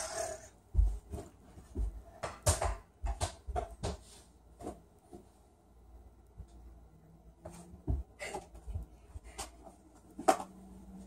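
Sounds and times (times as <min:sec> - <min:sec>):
ball knocks and bumps: 0:00.7 - 0:05.2.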